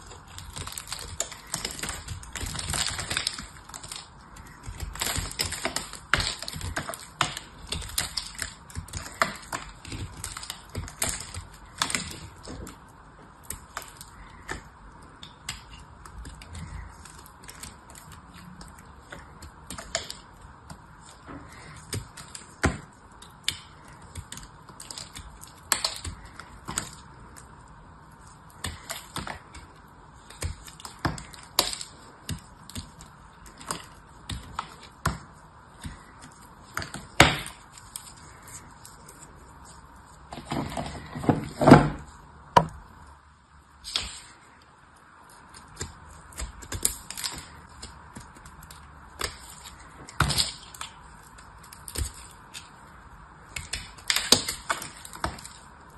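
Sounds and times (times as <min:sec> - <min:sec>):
crisp clicks and cracks: 0:00.0 - 0:41.6, 0:43.8 - 0:55.9
crunching: 0:00.0 - 0:43.1.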